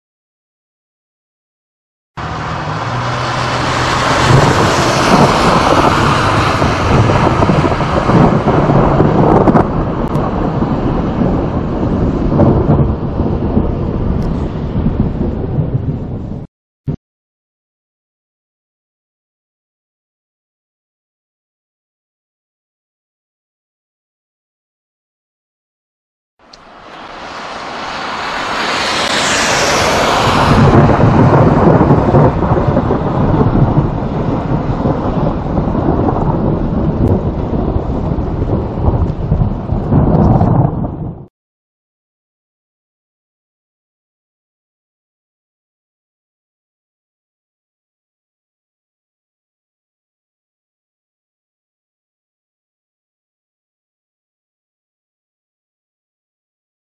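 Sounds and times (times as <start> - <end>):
thunder rumbling: 2.2 - 16.5, 26.6 - 41.3.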